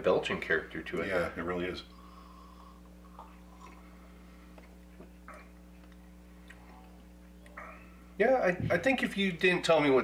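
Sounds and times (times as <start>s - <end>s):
low electrical hum: 0.0s - 10.0s
beer sipping mouth sounds: 2.8s - 5.5s.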